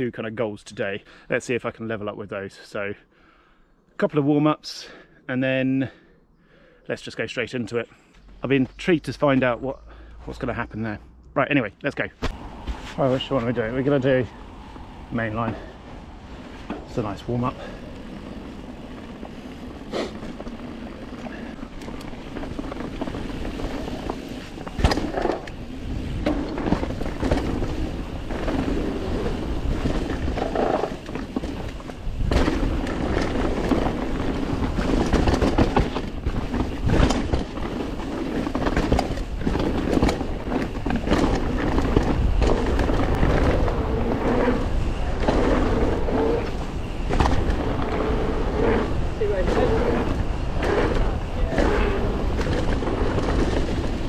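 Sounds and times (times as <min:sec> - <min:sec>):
wind rush on microphone: 0:12.2 - 0:54.0
bike tyres rolling over dirt: 0:12.3 - 0:54.0
bike rattling and knocking: 0:16.6 - 0:54.0.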